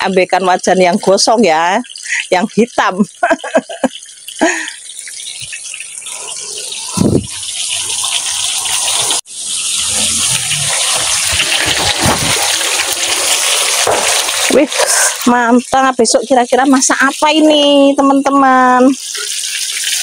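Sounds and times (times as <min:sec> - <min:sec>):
hot oil sizzling: 0:00.0 - 0:20.0.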